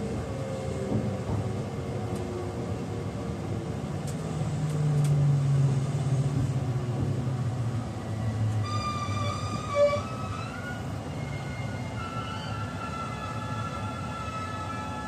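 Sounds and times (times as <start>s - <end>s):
train rumble from inside car: 0.0s - 15.0s.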